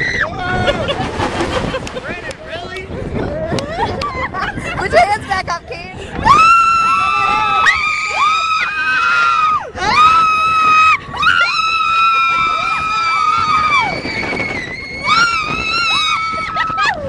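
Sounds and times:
people screaming: 6.2 - 17.0.

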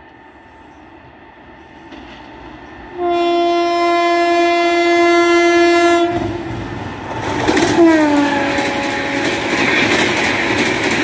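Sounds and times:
train rushing past: 0.0 - 11.0
locomotive horn blast: 2.9 - 6.4, 7.8 - 9.4.

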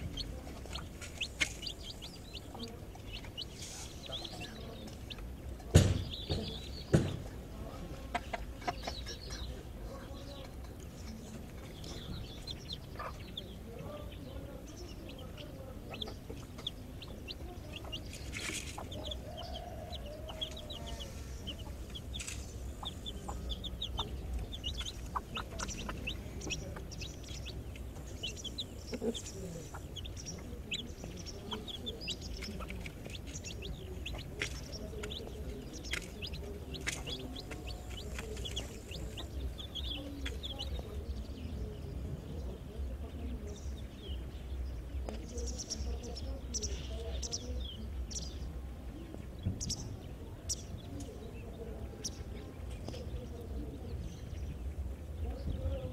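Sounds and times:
hen clucking: 0.0 - 41.7
chicks peeping: 0.0 - 55.9.

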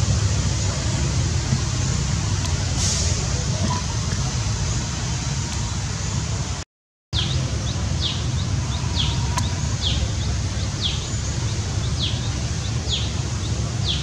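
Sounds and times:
bird calling: 7.2 - 14.0.

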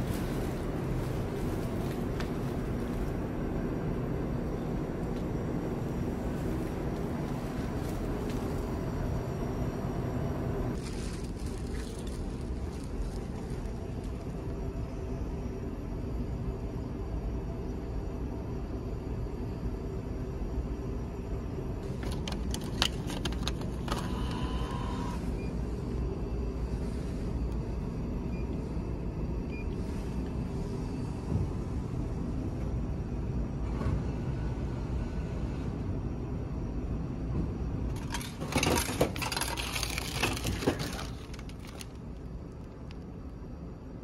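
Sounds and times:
packaged meal clattering and crinkling: 10.8 - 14.2, 38.0 - 42.0.

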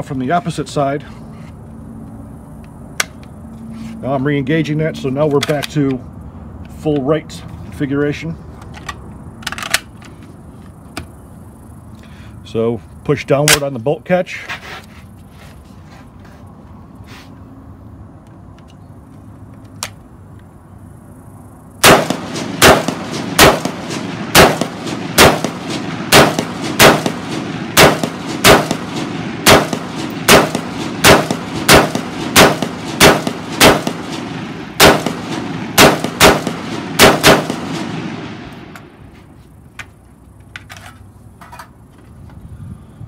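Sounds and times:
rifle shots with echo: 21.8 - 38.9.

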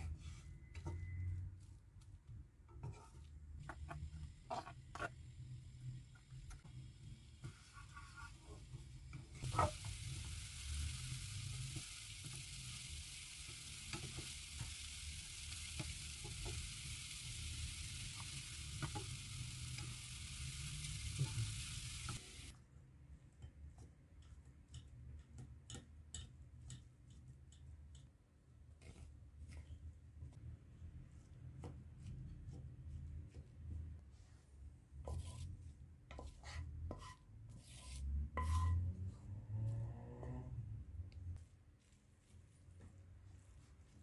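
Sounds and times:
wooden spatula scraping pan: 2.8 - 5.4, 7.4 - 8.8, 9.4 - 10.0, 35.0 - 40.3
onion sizzling in oil: 3.8 - 22.5
spatula tapping metal sieve: 23.4 - 28.1.

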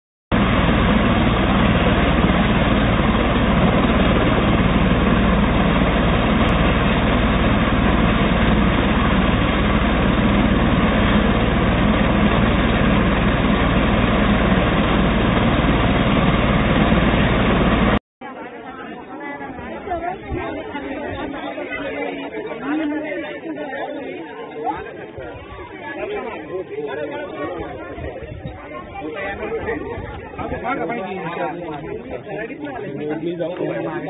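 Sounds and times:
helicopter engine and rotor drone: 0.3 - 18.0.

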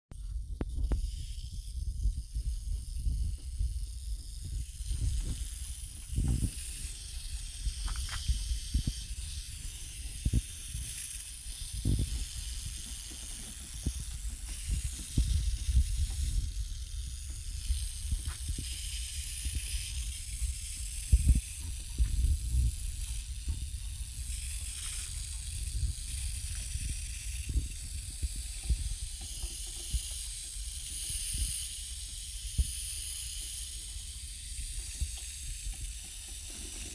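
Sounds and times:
hose spraying water: 3.9 - 36.9.

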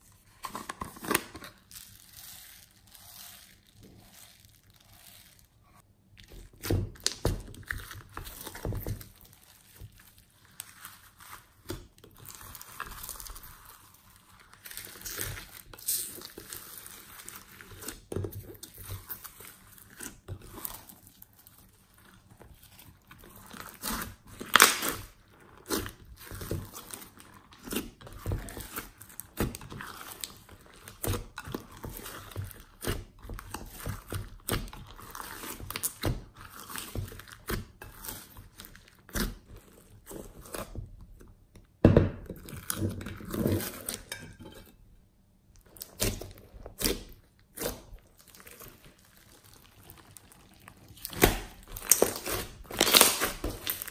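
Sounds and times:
slime squishing with wet clicks: 45.5 - 53.9.

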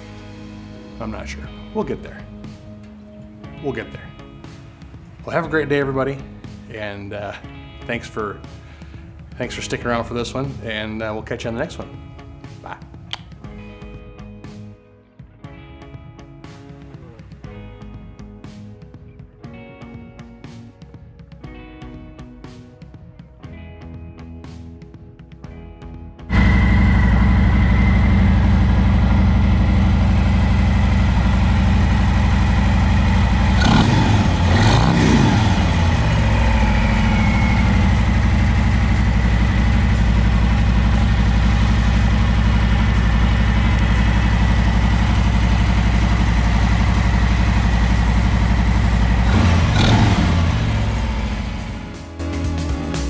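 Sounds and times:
motorcycle engine idling and revving: 26.3 - 53.0.

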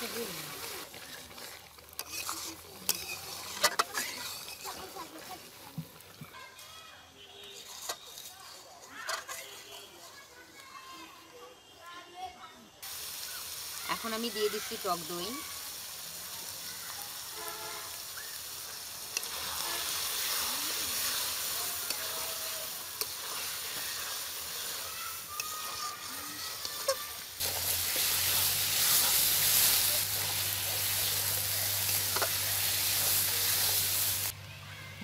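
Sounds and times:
metal spatula scraping a pan: 0.0 - 5.5, 7.3 - 10.3, 19.0 - 34.2
chicken sizzling in a pan: 0.0 - 6.9, 12.8 - 34.3.

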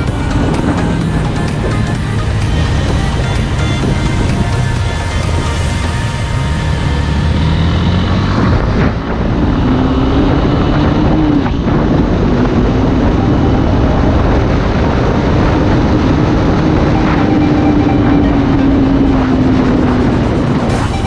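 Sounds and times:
motorcycle engine drone: 0.0 - 21.0
wind rushing over microphone: 0.0 - 21.0.

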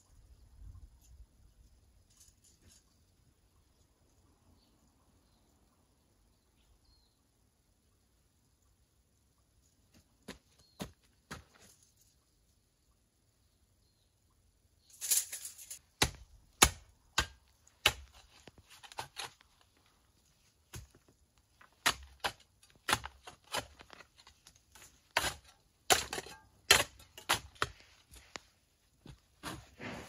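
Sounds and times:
spade digging into soil: 15.0 - 19.8, 20.6 - 28.4, 29.0 - 30.0.

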